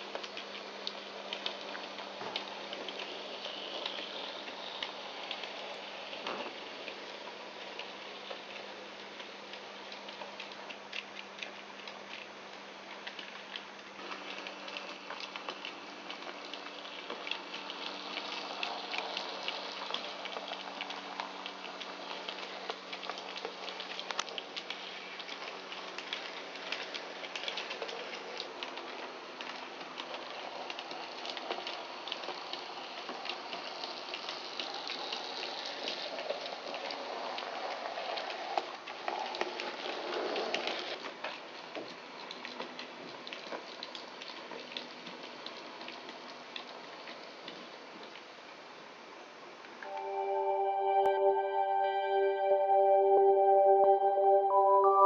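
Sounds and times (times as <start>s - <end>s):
model train wheels clicking: 13.1s - 41.0s.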